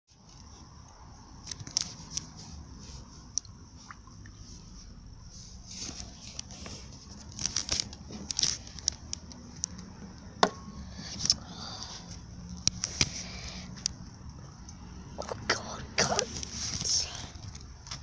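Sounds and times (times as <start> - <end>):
rustling handling noise: 0.1 - 10.1, 16.0 - 18.0.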